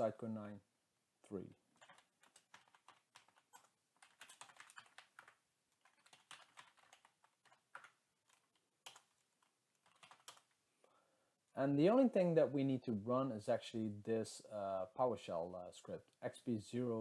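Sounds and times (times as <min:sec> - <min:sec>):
computer keyboard typing: 0:01.7 - 0:10.5.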